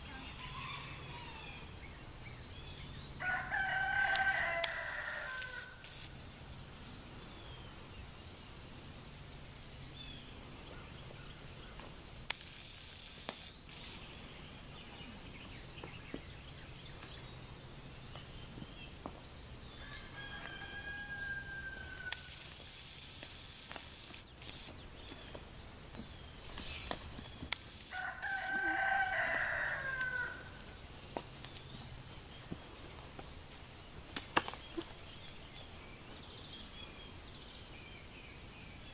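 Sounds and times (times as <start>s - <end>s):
rooster crowing: 0.2s - 1.7s, 3.2s - 5.9s, 19.7s - 22.4s, 27.9s - 30.6s.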